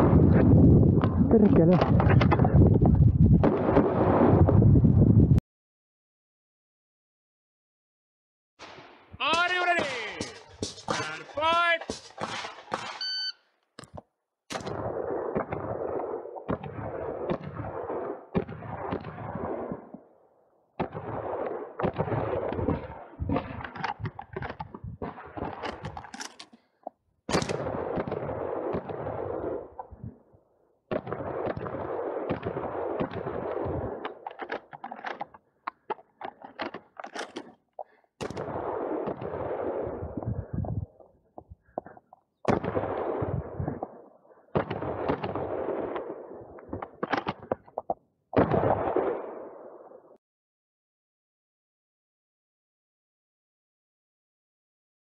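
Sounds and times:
shotgun shots: 8.6s - 13.3s, 14.5s - 19.9s, 20.8s - 26.0s, 27.3s - 29.8s, 30.9s - 34.6s, 38.2s - 40.2s, 42.5s - 47.5s, 48.4s - 50.0s
shells being loaded: 25.6s - 26.6s, 34.1s - 37.6s.

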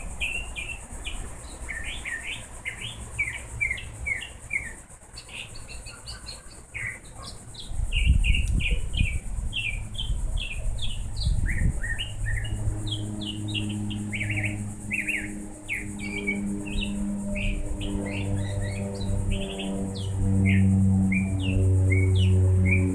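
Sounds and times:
small birds chirping: 0.0s - 22.9s
low multi-pitched hum: 7.7s - 22.9s.

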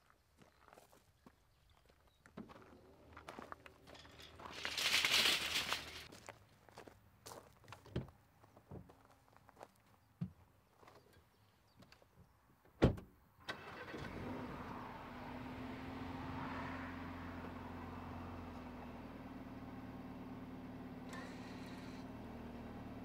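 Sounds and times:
car door shutting: 12.8s - 13.1s
car engine starting and idling: 13.4s - 23.0s.

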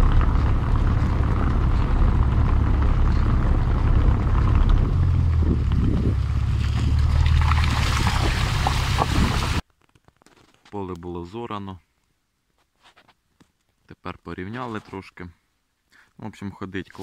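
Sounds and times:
tyres rumbling on rough road: 0.0s - 9.6s
wind buffeting microphone: 0.0s - 9.6s.

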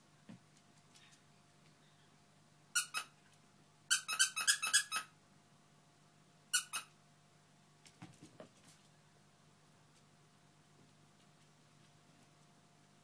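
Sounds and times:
squeaky dog toy squeezed: 2.8s - 3.1s, 3.9s - 5.1s, 6.5s - 6.9s.

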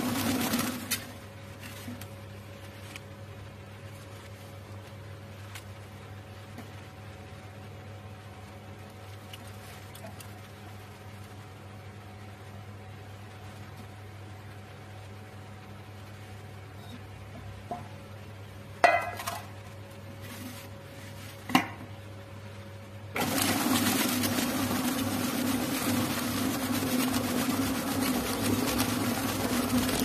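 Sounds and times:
mixer motor running: 0.0s - 1.2s, 23.2s - 30.0s.

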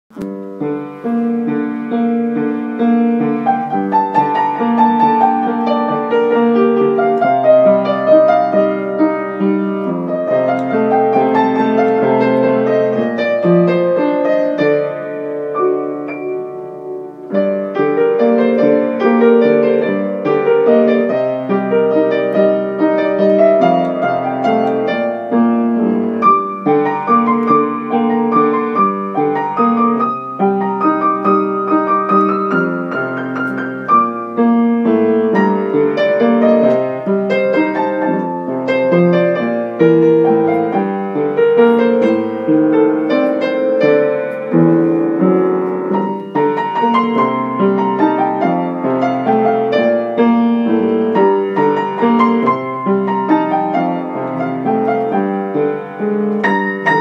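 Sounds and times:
gentle solo piano melody: 0.1s - 57.0s.

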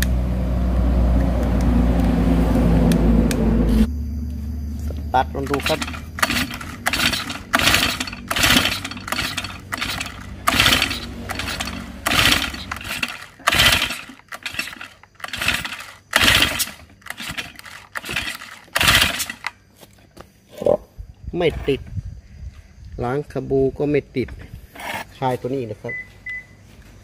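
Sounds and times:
engine pull-start cranking: 5.4s - 19.6s.

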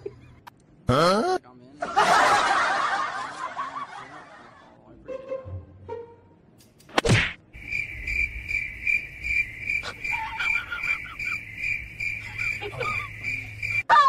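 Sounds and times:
sharp slap or swish: 6.6s - 7.5s
crickets chirping: 7.5s - 13.9s.

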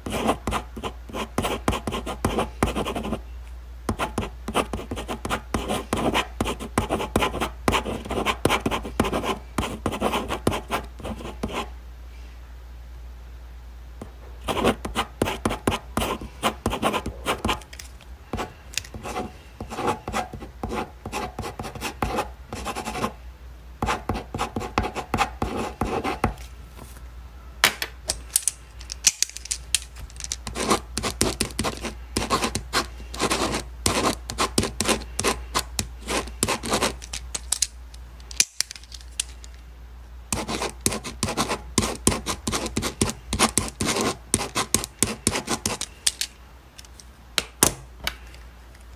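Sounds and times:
ballpoint pen writing on paper: 0.0s - 3.2s, 3.9s - 11.7s, 14.5s - 17.6s, 18.4s - 23.2s, 23.8s - 26.4s, 30.4s - 37.0s, 40.3s - 45.9s.

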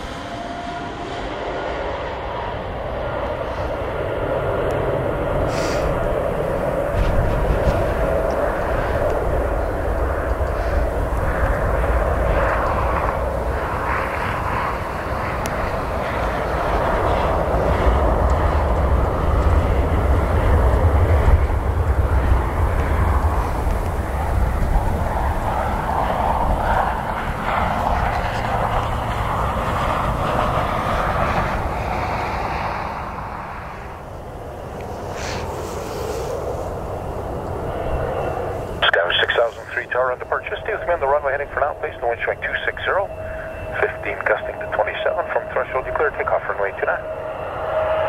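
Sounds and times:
jet engines roaring: 0.0s - 48.0s
wind rumble on microphone: 1.3s - 38.8s.

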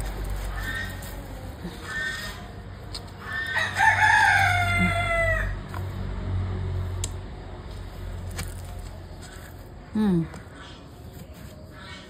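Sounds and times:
rooster crowing: 3.2s - 5.6s.

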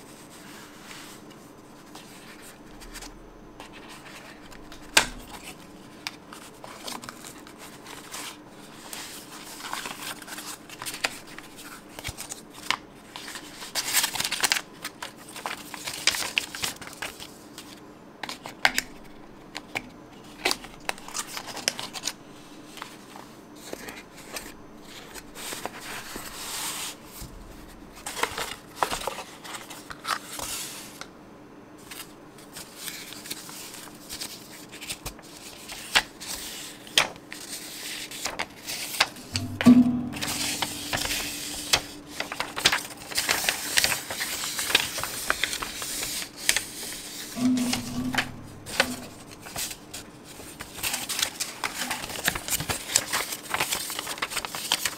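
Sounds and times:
faint steady hum: 0.0s - 13.9s, 46.5s - 50.6s.

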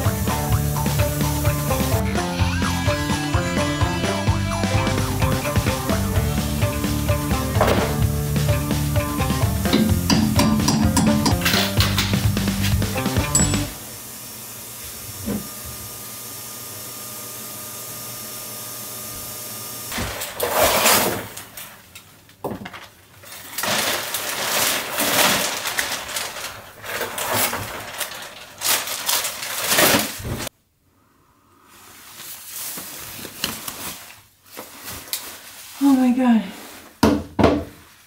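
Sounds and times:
plastic bag rustling: 20.0s - 30.5s, 31.7s - 37.0s.

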